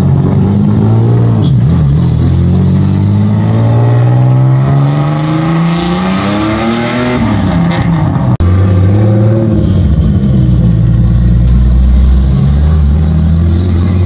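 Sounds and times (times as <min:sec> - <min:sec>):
engine revving and accelerating: 0:00.0 - 0:10.0, 0:11.5 - 0:14.0.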